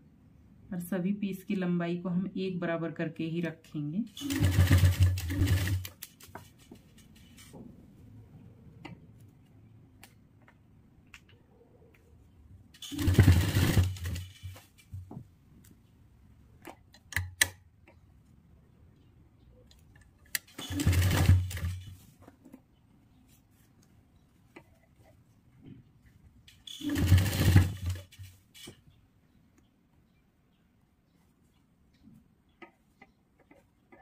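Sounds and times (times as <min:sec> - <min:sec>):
sewing machine stitching: 0:04.1 - 0:06.0, 0:12.8 - 0:14.6, 0:20.4 - 0:21.9, 0:26.6 - 0:28.3.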